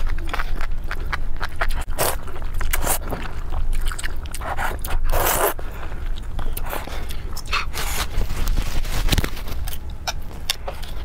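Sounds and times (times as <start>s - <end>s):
steady low hum: 0.0s - 11.0s
person slurping noodles: 4.4s - 5.6s.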